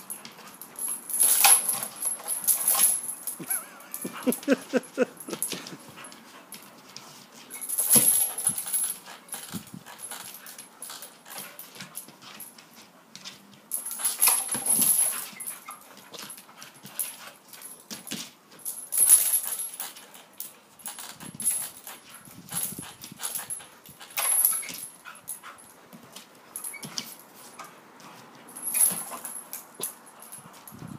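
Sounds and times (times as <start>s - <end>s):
small dog noises: 3.4s - 6.5s.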